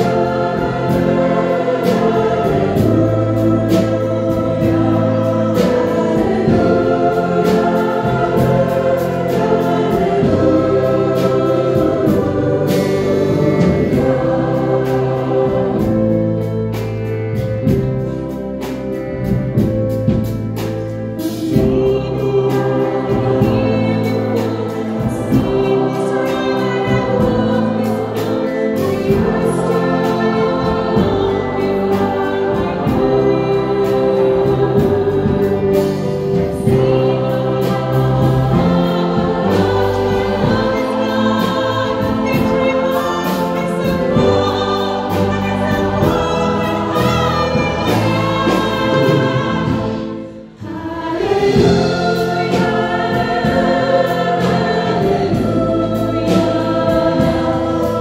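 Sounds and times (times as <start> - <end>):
mixed-voice choir singing: 0.0 - 58.0
woman soloist singing: 21.4 - 58.0.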